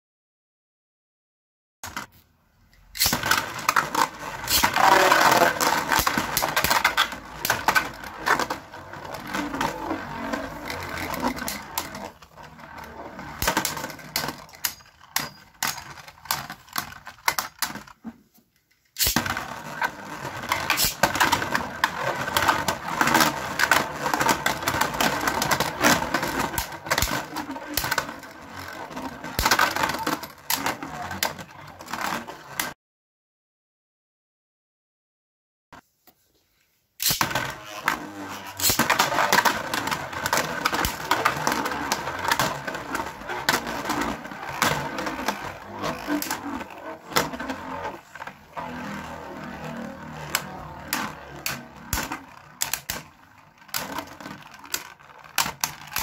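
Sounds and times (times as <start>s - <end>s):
spinning tops whirring and scraping: 3.0s - 17.1s, 18.9s - 31.4s, 37.0s - 56.0s.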